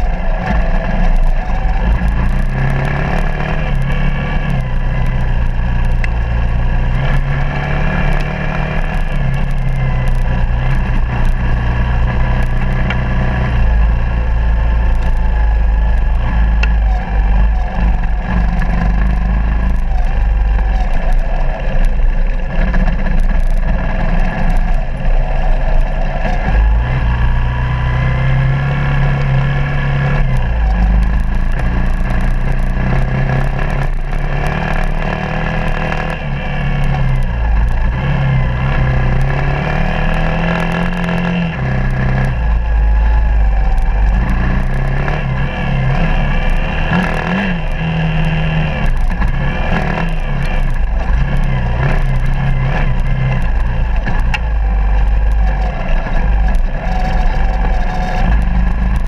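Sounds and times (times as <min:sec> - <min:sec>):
motorcycle engine revving: 0:00.0 - 0:59.0.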